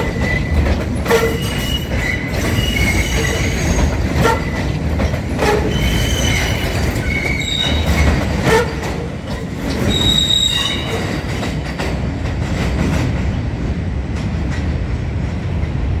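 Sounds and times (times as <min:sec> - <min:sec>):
wheels clacking over rail joints: 0:00.0 - 0:13.4
train cars rumbling: 0:00.0 - 0:16.0
high wheel squeals: 0:01.1 - 0:04.6, 0:05.6 - 0:08.7, 0:09.3 - 0:11.1.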